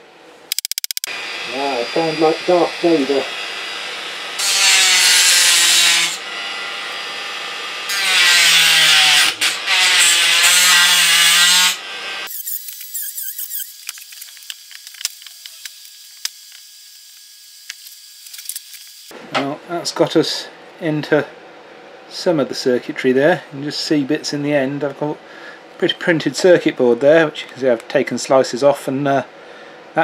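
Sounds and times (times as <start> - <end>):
rotary tool grinding: 0.5 - 1.1, 8.0 - 19.1.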